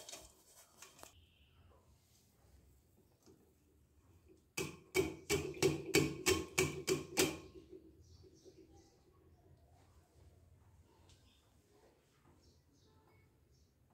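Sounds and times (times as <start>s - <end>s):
pieces clattering in metal strainer: 0.0s - 1.1s.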